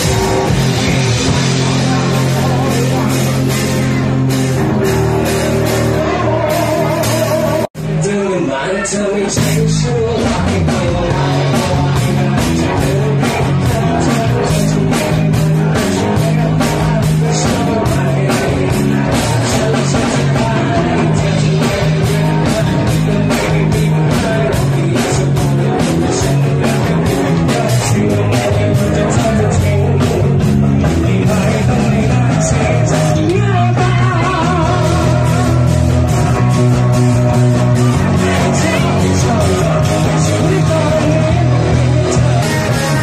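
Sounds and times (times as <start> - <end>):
bass line: 0.0 - 43.0
electric guitar: 0.0 - 43.0
drum beat: 9.4 - 43.0.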